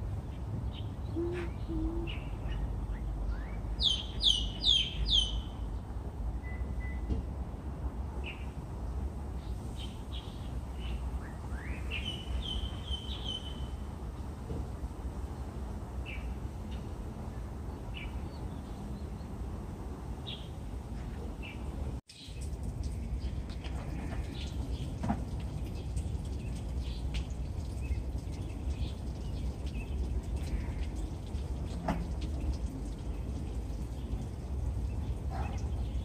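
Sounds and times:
sparrows chirping: 0:00.2 - 0:07.1, 0:09.4 - 0:13.8, 0:21.3 - 0:31.2.

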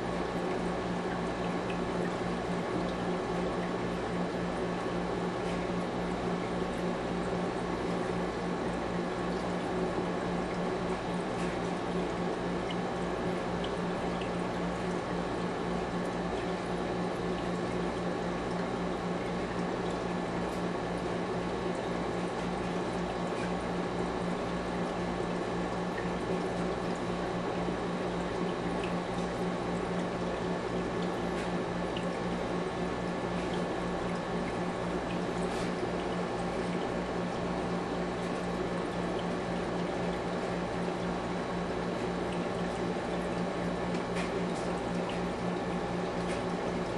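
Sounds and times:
constant low hum: 0:00.0 - 0:46.9
water trickling and splashing: 0:28.2 - 0:46.9.

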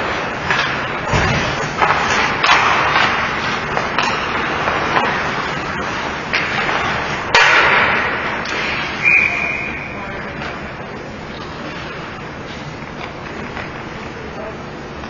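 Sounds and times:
skates scraping on ice: 0:00.0 - 0:09.0
hockey sticks and puck clacking: 0:00.0 - 0:15.0
referee whistle blast: 0:09.0 - 0:10.0.

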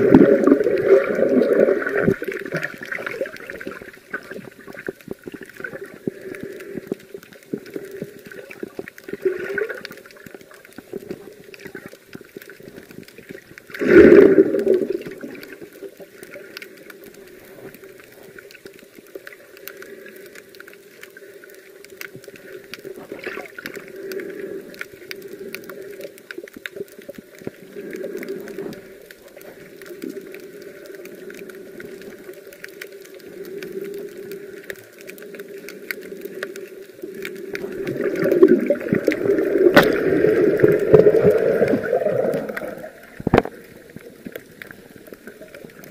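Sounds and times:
water swishing and gurgling: 0:00.0 - 0:45.9
small clicks: 0:14.4 - 0:45.9.

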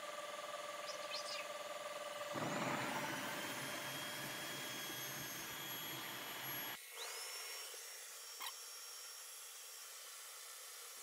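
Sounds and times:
vacuum motor and suction rush: 0:02.2 - 0:07.2.

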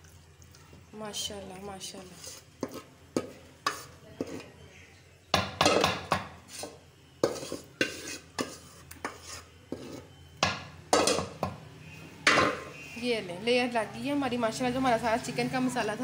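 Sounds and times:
metal spoon scraping cookware: 0:02.2 - 0:04.5, 0:06.5 - 0:10.2.

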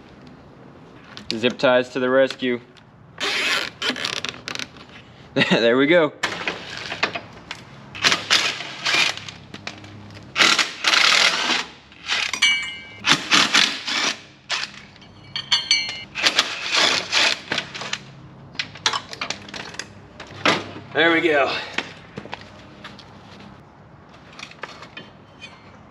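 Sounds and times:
metal tools clattering on concrete: 0:12.2 - 0:13.0, 0:14.6 - 0:16.2, 0:18.6 - 0:19.9.

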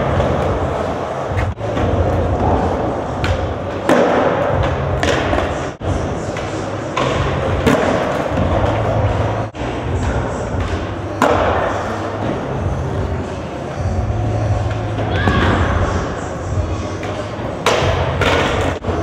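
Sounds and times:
skateboard wheels rolling on concrete: 0:00.0 - 0:19.0
skateboard clacks and thuds: 0:17.0 - 0:18.8.

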